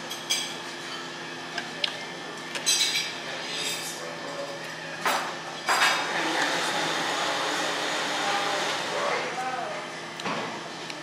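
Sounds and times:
cutlery scraping ceramic plates: 2.6s - 4.0s.

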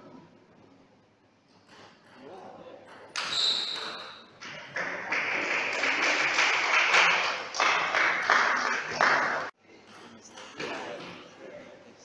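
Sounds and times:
audience clapping: 4.4s - 9.5s.

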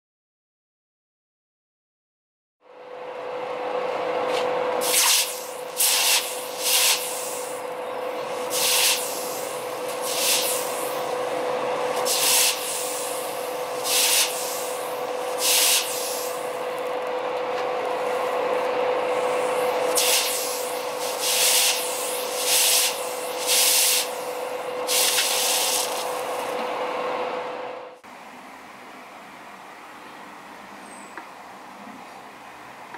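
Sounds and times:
constant hum: 2.7s - 32.9s
hot metal sizzling in water: 4.8s - 7.6s, 8.4s - 11.0s, 12.0s - 16.4s, 19.9s - 26.3s
steam hissing: 4.8s - 16.8s, 18.0s - 26.6s.

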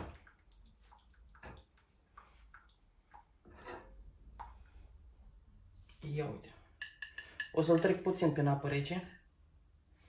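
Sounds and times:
water dripping: 0.0s - 5.1s, 6.7s - 8.0s.

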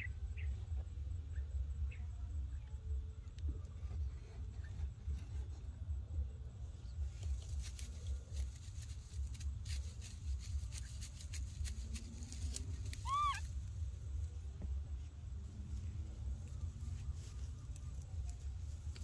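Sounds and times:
light clicks and rustles: 7.0s - 13.0s
high animal call: 12.8s - 13.6s.

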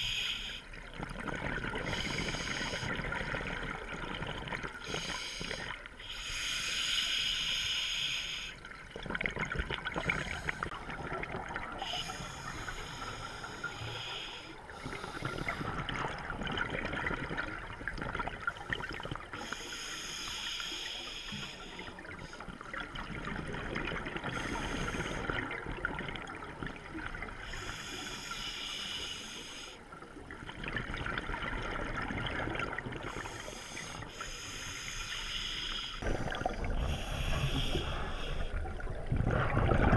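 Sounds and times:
regulator hissing inhalation: 4.8s - 8.6s, 19.4s - 22.4s, 27.5s - 29.8s, 33.1s - 36.0s, 36.8s - 38.6s
bubbling exhalation: 36.0s - 39.9s.

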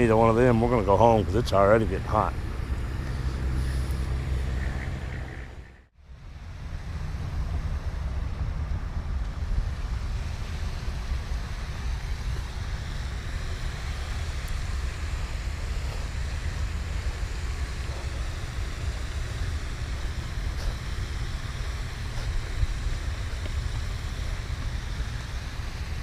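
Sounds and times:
wind buffeting microphone: 6.5s - 26.0s.

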